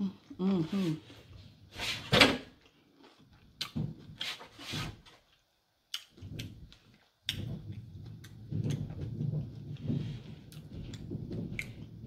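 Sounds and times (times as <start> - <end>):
person chewing food: 2.6 - 3.8, 5.2 - 9.0.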